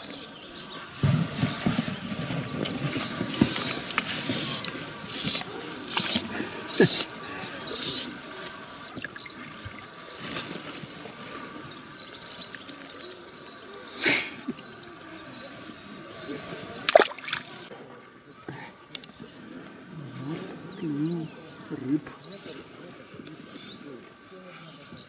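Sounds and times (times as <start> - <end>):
small bird chirping: 3.4 - 15.4
water splashing swishes: 16.7 - 17.7
loud splash: 16.9 - 17.5.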